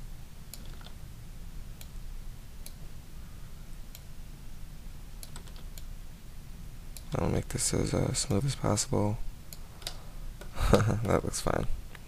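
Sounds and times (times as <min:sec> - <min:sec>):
low steady hum: 0:00.0 - 0:12.0
computer mouse and keyboard clicks: 0:00.5 - 0:01.0, 0:05.2 - 0:05.9.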